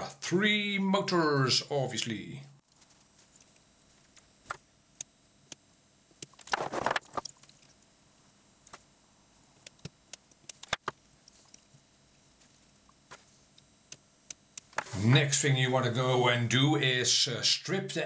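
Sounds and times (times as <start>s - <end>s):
rustling scrape: 6.5s - 7.2s.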